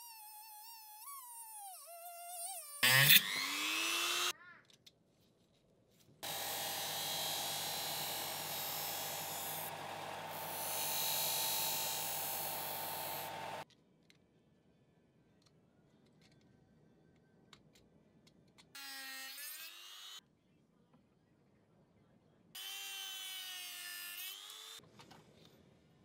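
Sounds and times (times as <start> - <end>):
rotary tool cutting steel: 0.2 - 4.3, 6.2 - 13.6
disc sander grinding steel: 6.2 - 13.6.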